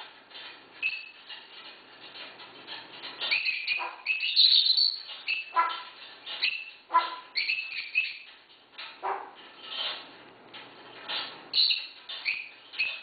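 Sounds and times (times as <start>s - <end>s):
parrot whistled squawks and chirps: 3.3s - 5.8s, 6.4s - 8.3s, 11.5s - 13.0s
parrot mimicking dog bark: 5.5s - 5.9s.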